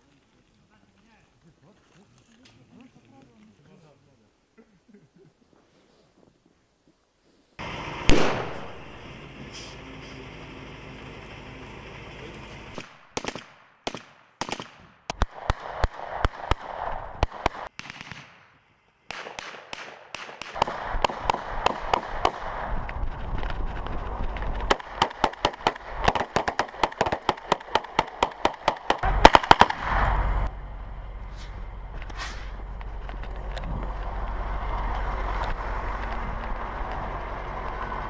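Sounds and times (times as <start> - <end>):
gunfire: 8.1 - 9.0, 12.8 - 22.8, 24.5 - 30.5.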